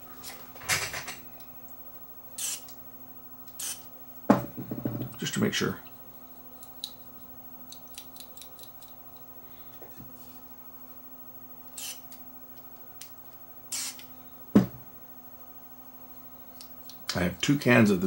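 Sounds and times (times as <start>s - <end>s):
aerosol spray hissing: 2.4s - 2.7s.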